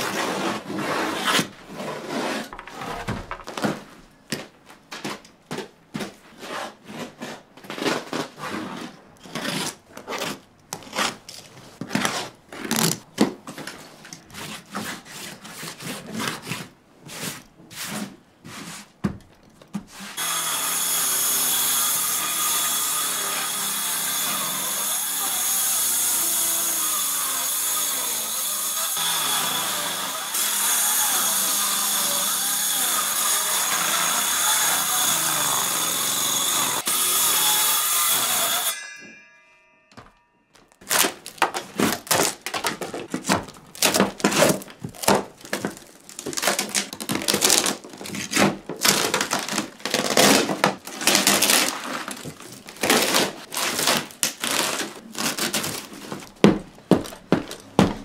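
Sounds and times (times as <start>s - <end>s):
knocks and scrapes: 0.0s - 20.2s
circular saw cutting wood: 20.0s - 39.1s.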